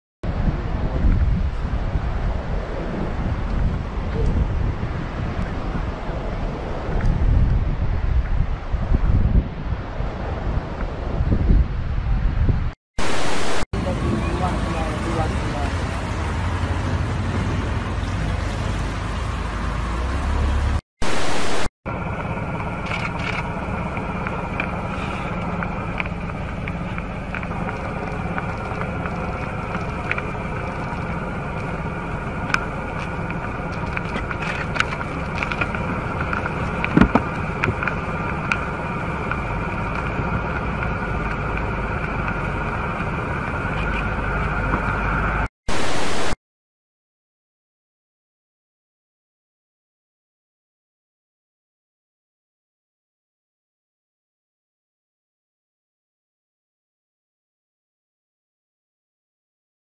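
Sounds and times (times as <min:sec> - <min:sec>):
tv static burst: 0:13.0 - 0:13.6, 0:21.0 - 0:21.7, 0:45.7 - 0:46.4.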